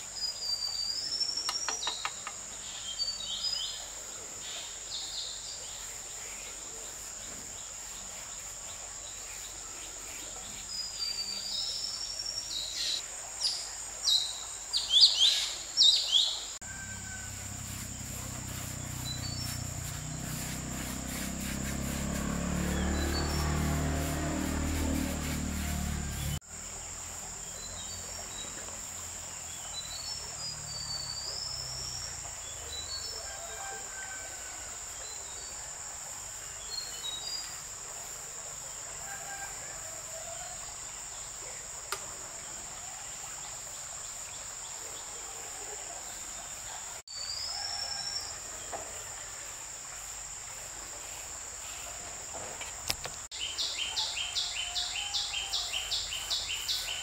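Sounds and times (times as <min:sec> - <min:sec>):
bird chirps: 0:00.2 - 0:03.6.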